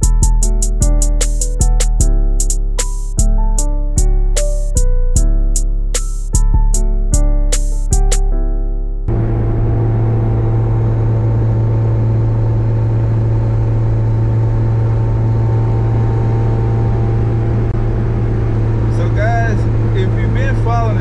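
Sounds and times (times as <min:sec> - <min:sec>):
car engine drone from cabin: 0:09.0 - 0:21.0.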